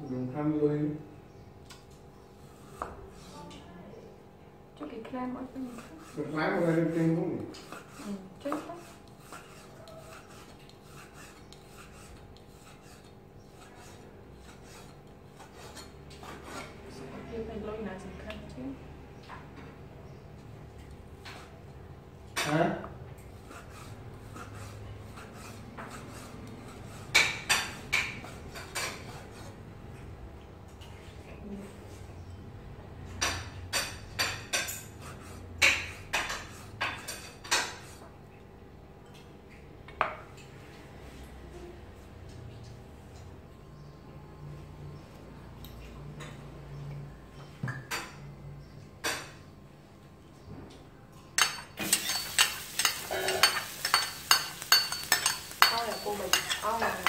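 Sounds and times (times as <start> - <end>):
knife cutting meat on board: 7.4 - 16.8.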